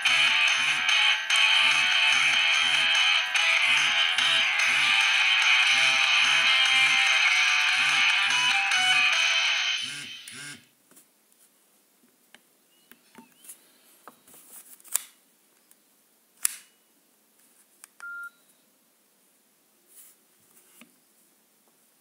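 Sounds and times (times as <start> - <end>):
short phone beep: 18.0 - 18.4.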